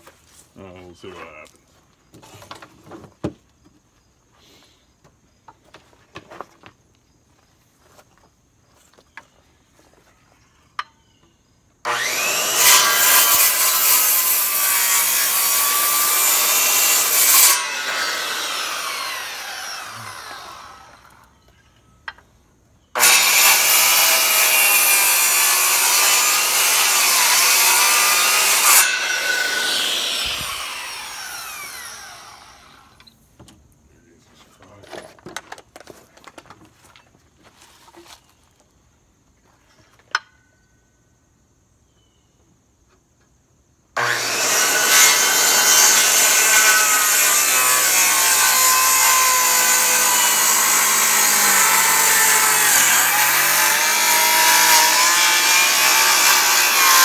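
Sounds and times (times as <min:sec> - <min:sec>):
circular saw cutting wood: 0:11.8 - 0:21.3, 0:23.0 - 0:33.1, 0:44.0 - 0:57.0.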